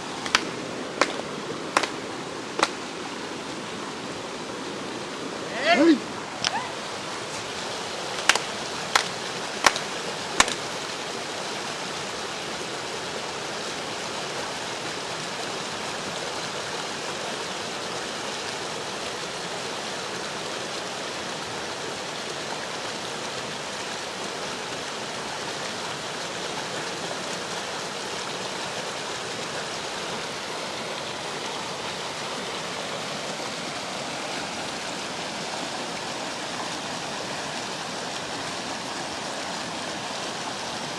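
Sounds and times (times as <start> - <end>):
river rapids rushing: 0.0 - 40.9
sharp claps: 8.2 - 10.6.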